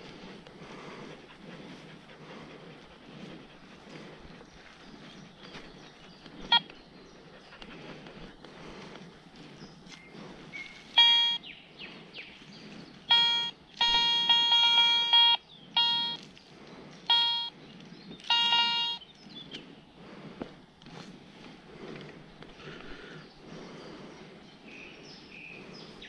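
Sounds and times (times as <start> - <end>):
metal detector beeping: 6.4 - 6.8, 10.6 - 11.5, 13.1 - 16.3, 17.1 - 17.6, 18.2 - 19.1.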